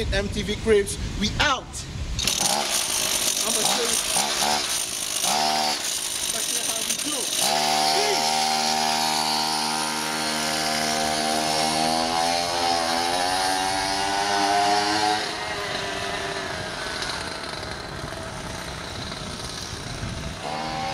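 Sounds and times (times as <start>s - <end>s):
motor scooter engine revving: 2.2s - 20.9s.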